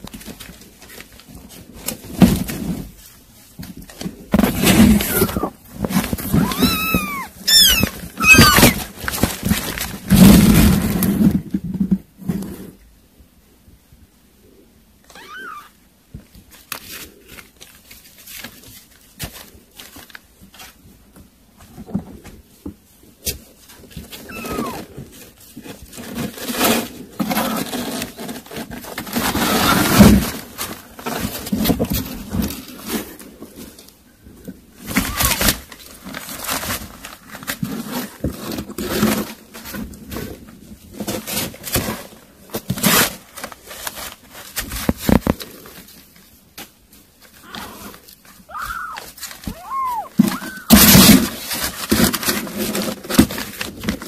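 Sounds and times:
kittens scrabbling on newspaper: 0.0s - 12.8s, 15.0s - 54.0s
kitten mews: 4.9s - 5.6s, 6.2s - 8.8s, 15.1s - 15.8s, 24.3s - 24.9s, 34.9s - 35.6s, 47.4s - 47.9s, 48.5s - 51.1s.

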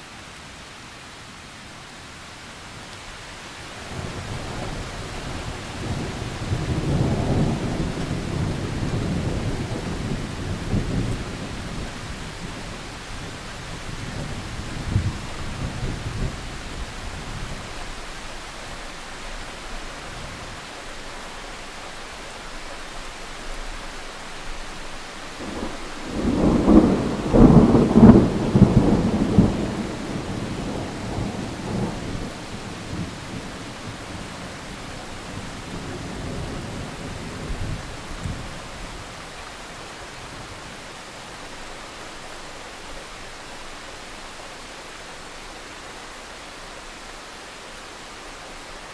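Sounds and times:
steady rain hissing: 0.0s - 48.9s
thunder rumbling: 25.4s - 39.4s.

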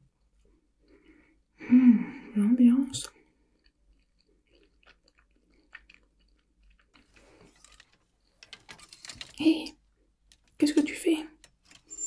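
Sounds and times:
close-up chewing: 3.0s - 8.3s.

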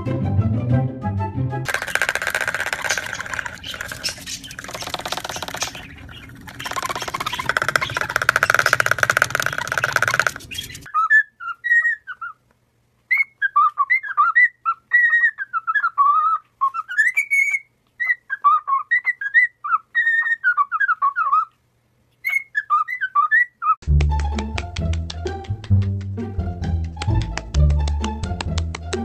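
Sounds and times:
parrot screeching: 1.8s - 12.4s, 13.1s - 21.5s
cockatiel whistling a tune: 9.5s - 12.4s, 13.1s - 21.5s, 22.2s - 23.8s.

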